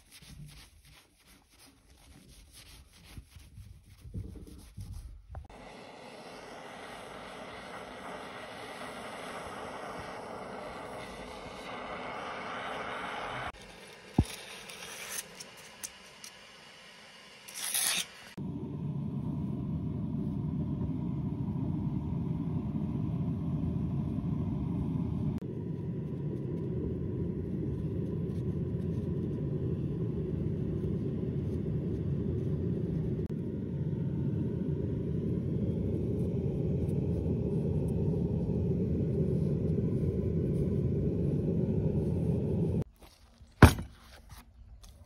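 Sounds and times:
steady low rumble: 3.0s - 14.4s, 18.4s - 42.9s.

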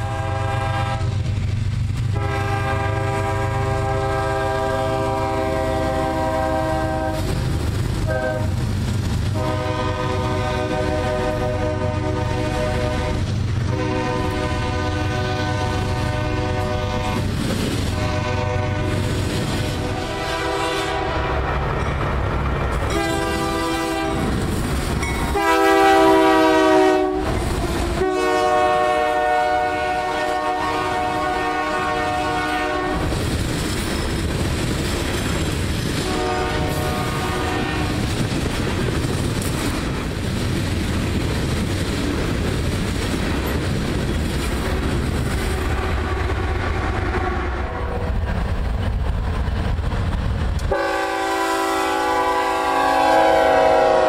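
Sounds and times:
locomotive air horn blasts: 0.0s - 1.2s, 2.1s - 7.3s, 8.0s - 8.6s, 9.3s - 17.3s, 17.9s - 21.5s, 22.9s - 24.4s, 25.3s - 33.1s, 36.0s - 38.1s, 47.1s - 48.1s, 50.7s - 54.0s
train wheels rumbling on rails: 0.0s - 54.0s.

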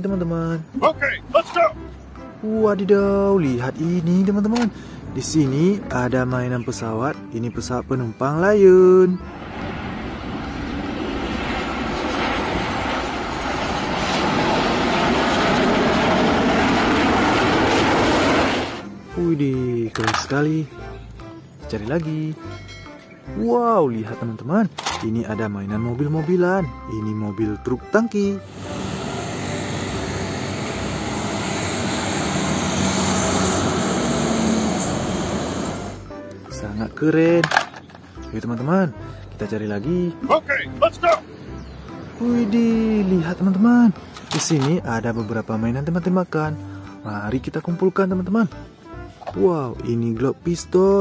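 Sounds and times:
low hum: 9.2s - 19.1s, 28.4s - 36.1s
jet engines rushing: 9.2s - 19.2s, 28.4s - 36.0s
motorbikes passing: 28.4s - 36.0s.

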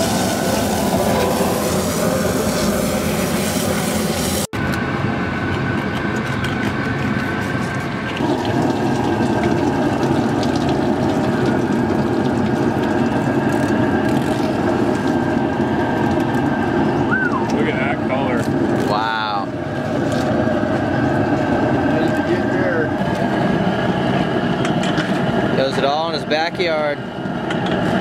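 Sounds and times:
water running: 8.0s - 15.3s.

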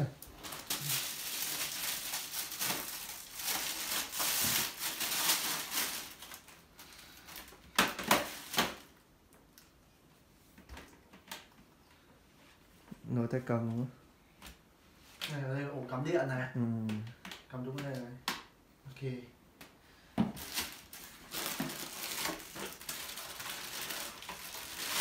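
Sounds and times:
plastic packaging crinkling: 0.2s - 8.9s, 20.4s - 25.0s.

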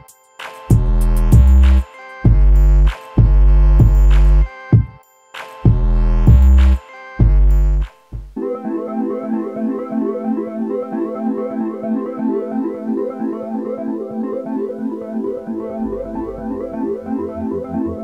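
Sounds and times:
deep bass line: 0.7s - 4.5s, 5.7s - 8.4s.

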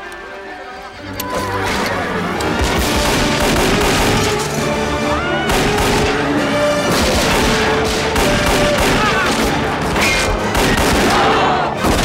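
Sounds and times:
orchestral action score: 0.0s - 12.0s
pistol gunfire: 2.8s - 4.4s, 5.5s - 6.3s, 6.9s - 9.6s, 10.5s - 12.0s.

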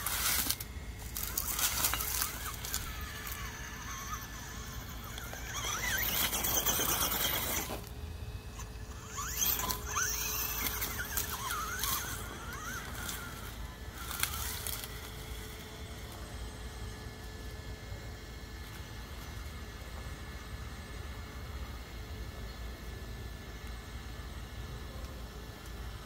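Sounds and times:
drivetrain and tyre noise: 0.0s - 16.3s
electric motor whining: 0.0s - 21.0s.

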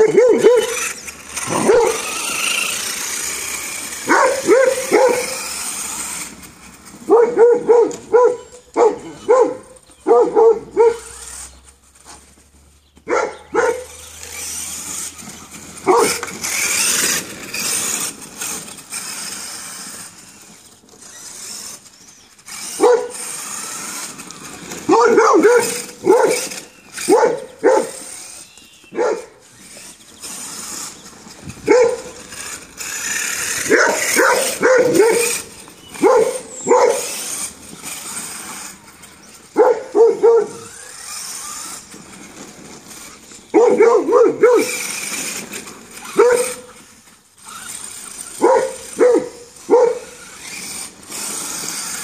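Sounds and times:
dog barking: 0.0s - 0.8s, 1.5s - 2.0s, 4.1s - 5.4s, 7.1s - 11.1s, 13.1s - 13.9s, 15.8s - 16.2s, 22.8s - 23.2s, 24.9s - 26.5s, 27.1s - 28.0s, 29.0s - 29.3s, 31.7s - 32.1s, 33.7s - 35.4s, 36.0s - 37.1s, 39.6s - 40.7s, 43.6s - 44.8s, 46.1s - 46.7s, 48.4s - 50.2s
electric motor whine: 0.0s - 52.0s.

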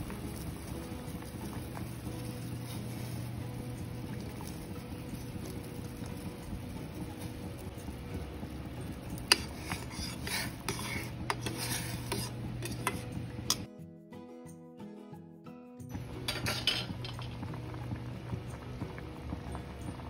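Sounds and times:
broth simmering in a pot: 0.0s - 13.7s, 15.9s - 20.0s
metal ladle clinking and scraping pot: 9.2s - 13.7s, 16.2s - 17.4s.

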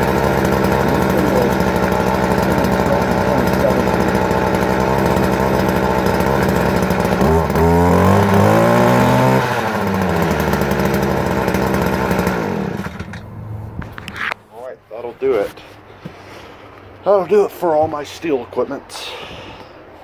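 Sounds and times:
small two-stroke engine idling: 0.0s - 13.5s.

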